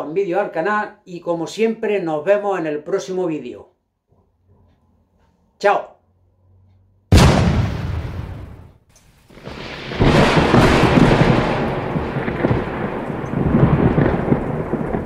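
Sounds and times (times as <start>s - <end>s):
thunder rolling: 7.1s - 8.7s, 9.3s - 15.0s
heavy rain rushing: 9.3s - 15.0s.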